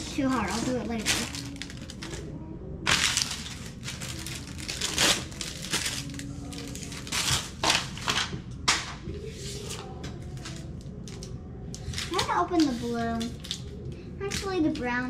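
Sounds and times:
plastic wrapper crinkling: 0.0 - 2.3, 2.9 - 8.3.

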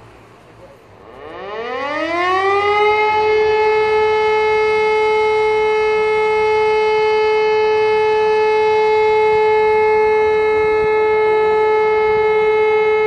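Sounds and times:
air raid siren: 0.0 - 13.0.

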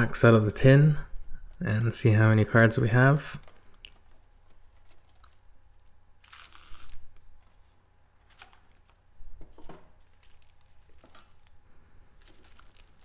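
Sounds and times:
foil card packs crinkling: 3.1 - 13.0.

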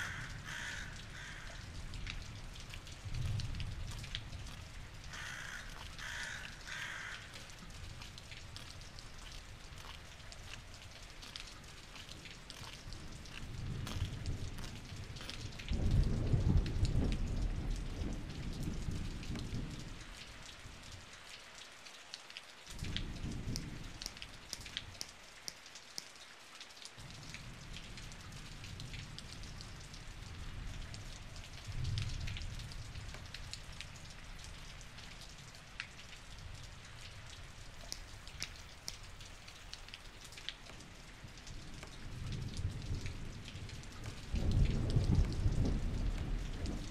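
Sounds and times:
low thunder rumbles: 0.0 - 8.3, 11.7 - 20.9, 22.8 - 24.8, 27.0 - 34.0, 42.0 - 46.9
steady rain falling: 0.0 - 46.9.

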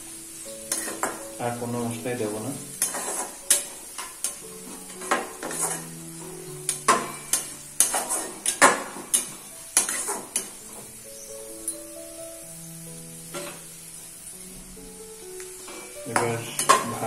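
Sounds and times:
light sizzle of frying: 0.0 - 17.0
utensil scraping and tapping a pan: 0.7 - 1.2, 2.7 - 10.9, 13.3 - 13.6, 15.4 - 17.0.

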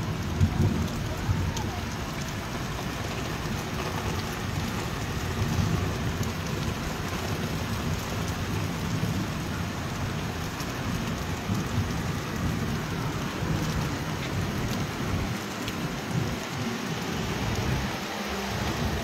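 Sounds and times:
heavy rain on concrete roof: 0.0 - 19.0.

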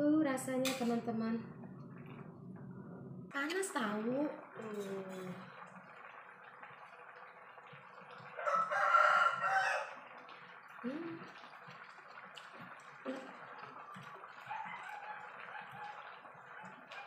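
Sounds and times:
rooster crowing: 8.4 - 10.0, 14.4 - 16.0.

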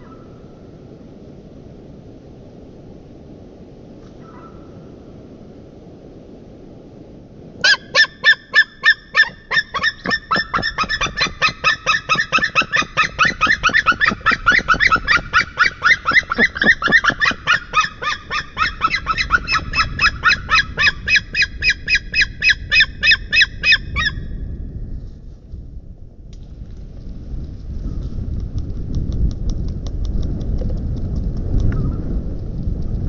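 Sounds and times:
eagles calling high notes: 7.6 - 24.2.

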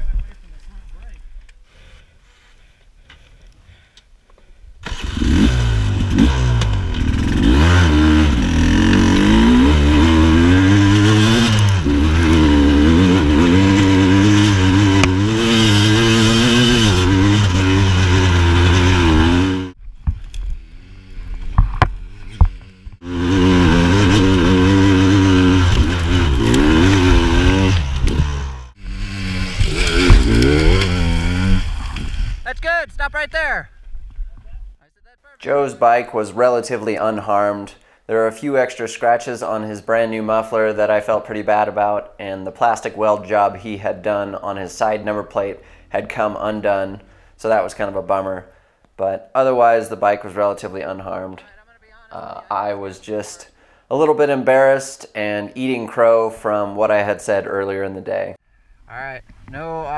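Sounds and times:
dirt bike engine revving: 4.8 - 19.8, 20.5 - 32.4.

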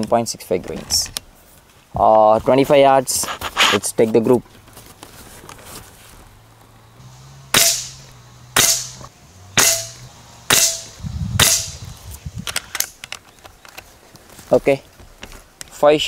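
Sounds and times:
air rifle shots cracking: 7.5 - 11.8.

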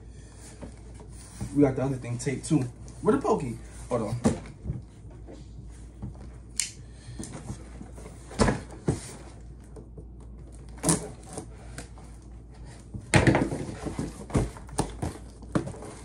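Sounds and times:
cardboard box knocks and scrapes: 12.9 - 16.0.

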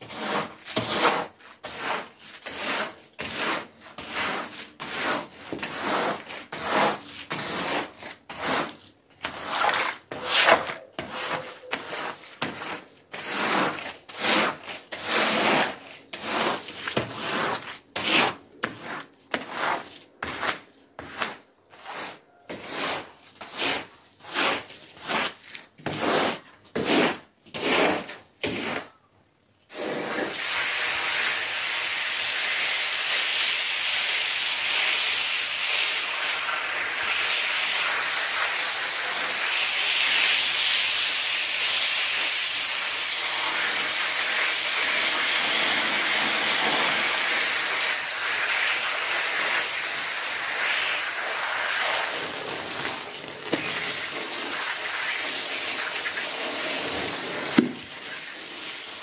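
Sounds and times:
squeegee scraping wet floor: 0.0 - 29.1, 29.7 - 59.0.

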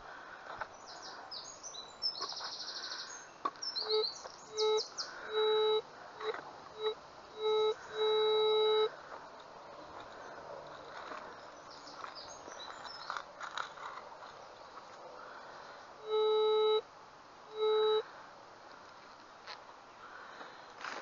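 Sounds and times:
metal detector low beeps: 3.7 - 8.9, 16.0 - 16.9, 17.5 - 18.1.

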